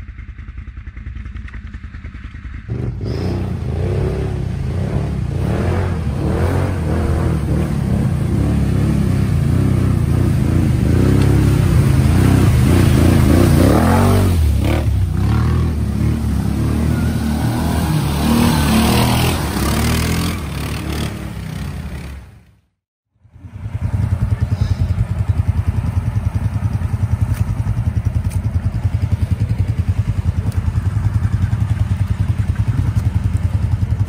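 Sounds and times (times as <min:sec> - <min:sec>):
vehicle engine revving hard: 0:02.7 - 0:22.3.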